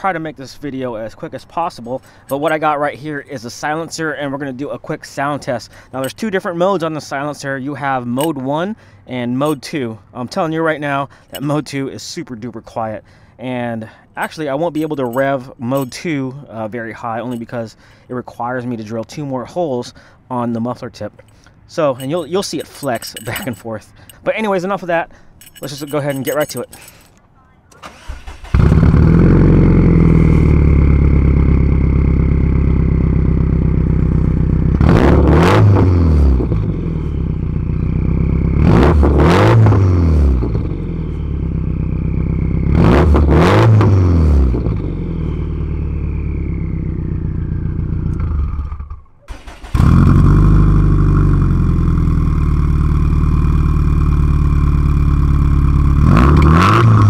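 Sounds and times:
car engine idling and revving: 0:27.9 - 0:57.0.

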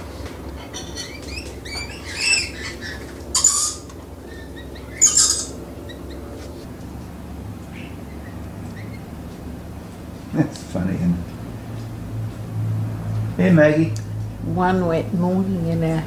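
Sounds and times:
parrots chirping and screeching: 0:00.6 - 0:06.7, 0:07.6 - 0:09.4.

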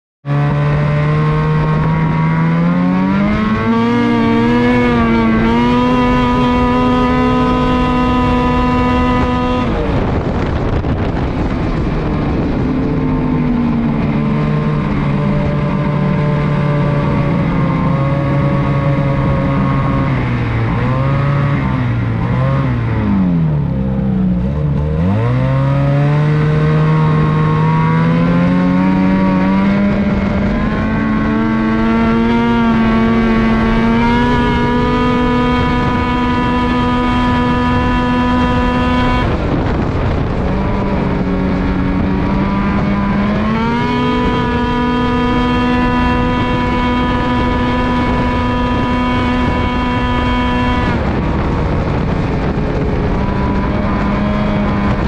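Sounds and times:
snowmobile engine revving: 0:00.3 - 0:55.0.

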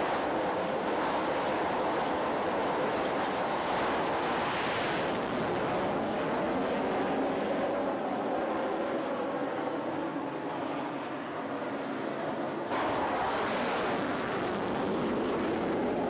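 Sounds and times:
jet aircraft rushing noise: 0:12.7 - 0:16.0.

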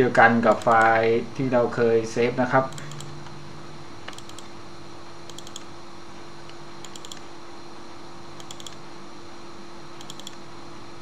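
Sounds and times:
steady low hum: 0:00.0 - 0:11.0
computer mouse double-clicking: 0:04.1 - 0:04.5, 0:05.3 - 0:05.7, 0:06.8 - 0:07.3, 0:08.4 - 0:08.8, 0:10.0 - 0:10.4.

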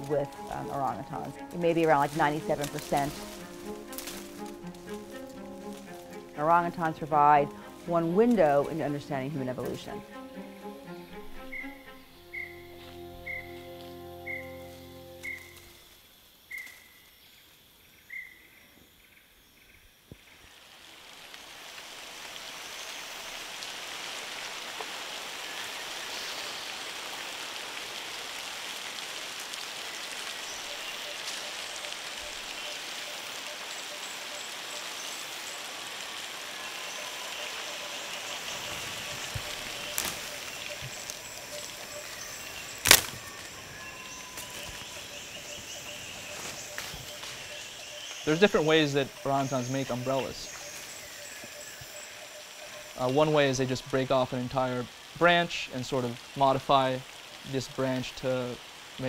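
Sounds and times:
rain hissing on canopy: 0:00.0 - 0:16.9, 0:20.1 - 0:59.0
sharp cracks: 0:42.8 - 0:43.5.

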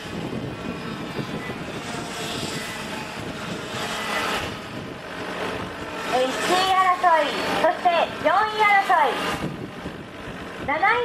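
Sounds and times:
kart engines at high revs: 0:00.0 - 0:09.8.

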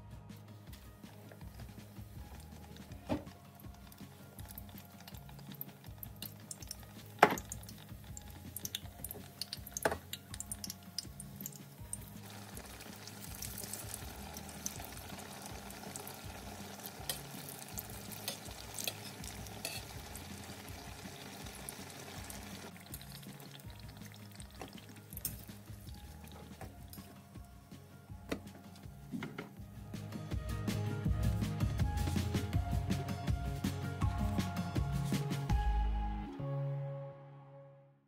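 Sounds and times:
oil sizzling and crackling: 0:00.7 - 0:27.5.

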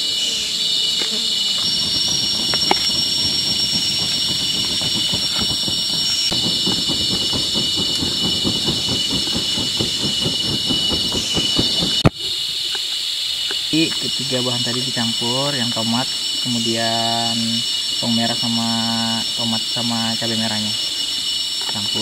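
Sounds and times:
insects droning: 0:00.0 - 0:22.0.

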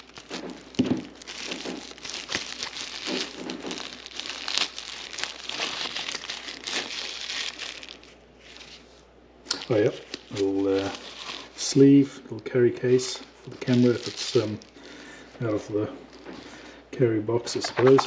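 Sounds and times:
plastic bag crinkling: 0:00.0 - 0:08.9, 0:09.5 - 0:11.8, 0:13.0 - 0:15.1, 0:17.5 - 0:18.0.

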